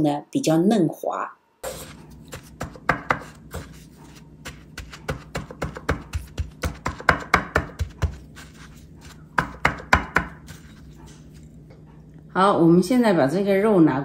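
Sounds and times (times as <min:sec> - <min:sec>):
fingers patting meat on plate: 0:04.3 - 0:11.4.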